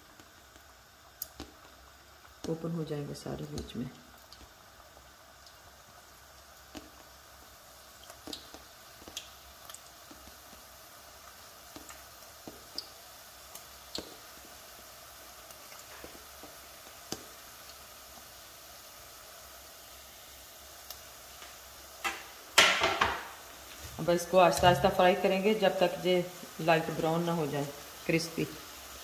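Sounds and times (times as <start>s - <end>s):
oil sizzling: 0.0s - 29.0s
sharp pops and crackles: 0.1s - 2.6s, 3.4s - 4.6s, 6.6s - 7.2s, 8.0s - 10.6s, 11.7s - 14.5s, 15.4s - 18.2s.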